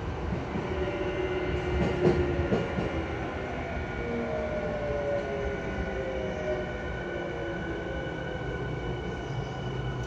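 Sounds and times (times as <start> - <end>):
train wheels rumbling on rail: 0.0 - 10.0.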